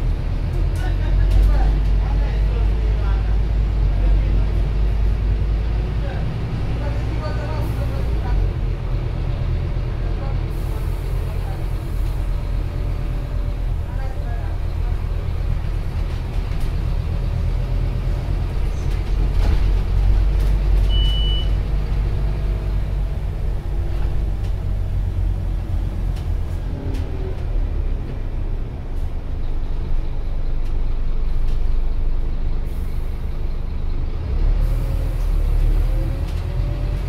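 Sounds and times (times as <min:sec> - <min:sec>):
bus engine rumble: 0:00.0 - 0:37.0
short high beep: 0:20.9 - 0:21.6.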